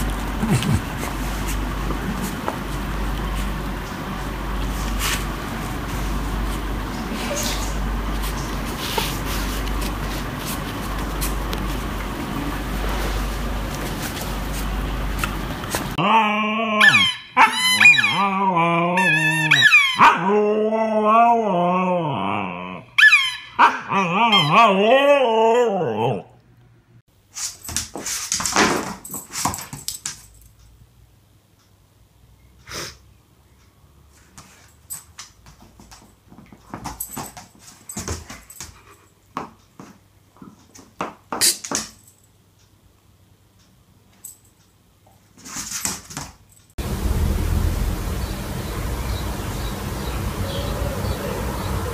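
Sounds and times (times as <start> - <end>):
dog moaning calls: 16.0 - 26.4
dog high squeals: 16.6 - 21.2, 22.3 - 25.2.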